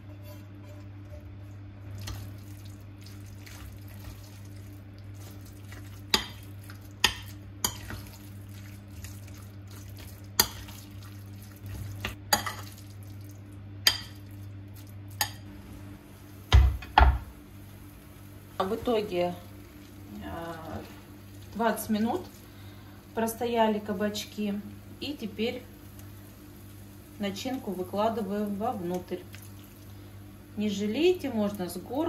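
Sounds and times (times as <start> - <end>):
spoon stirring food in bowl: 0.7 - 13.2, 13.8 - 15.5.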